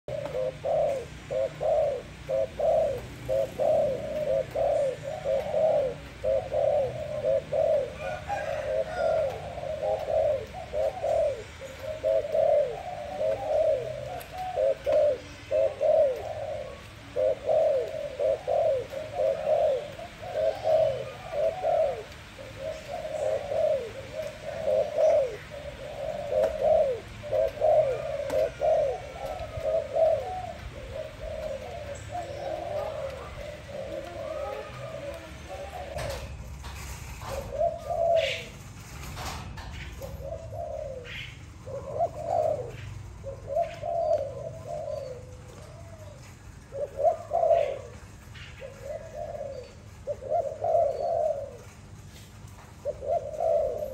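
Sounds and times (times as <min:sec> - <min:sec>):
dove cooing: 0:00.0 - 0:53.9.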